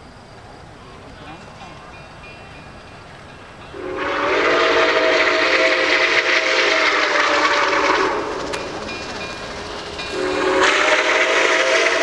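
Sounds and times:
steam locomotive whistle blast: 0:03.7 - 0:08.9, 0:10.1 - 0:12.0.

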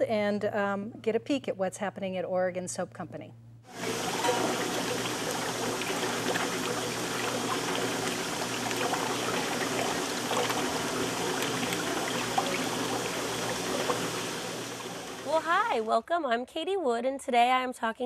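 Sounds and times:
faint hum: 0:03.0 - 0:15.9
liquid sloshing in a pot: 0:03.7 - 0:15.9.

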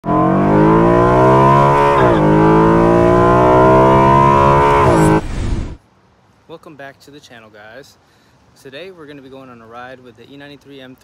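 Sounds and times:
car engine accelerating: 0:00.0 - 0:05.8.

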